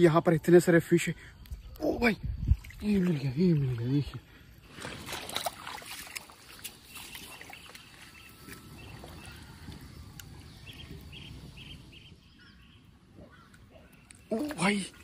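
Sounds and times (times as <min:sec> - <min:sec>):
water splashing: 0:02.4 - 0:11.9.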